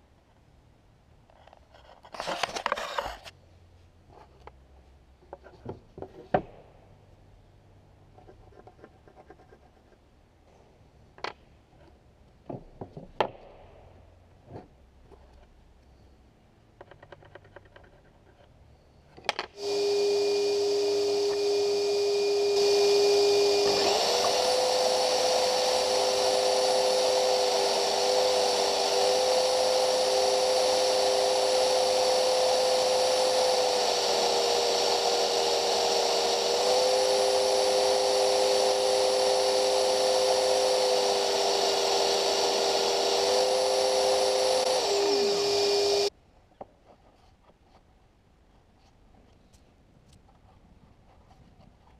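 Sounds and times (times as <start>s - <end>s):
electric planer motor running: 19.6s - 46.1s
vacuum motor running: 19.6s - 46.1s.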